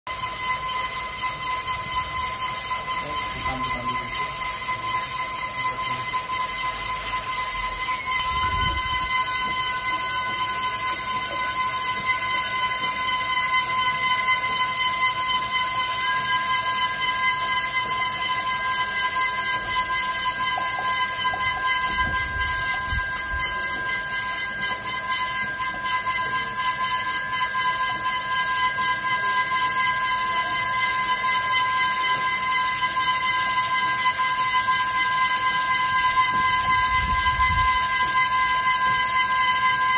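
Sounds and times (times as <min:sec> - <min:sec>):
machine motor whine: 0:00.1 - 0:28.7.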